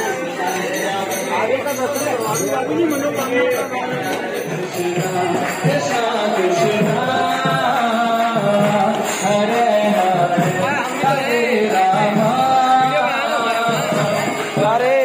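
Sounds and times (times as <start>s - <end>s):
instrumental accompaniment: 0.0s - 15.0s
person singing: 4.5s - 15.0s.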